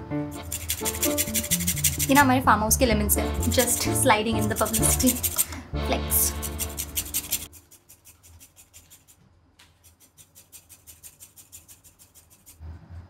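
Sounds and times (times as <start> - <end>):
lemon rind scraping on grater: 0.4 - 2.3, 3.3 - 5.5, 6.2 - 9.2, 9.8 - 12.6.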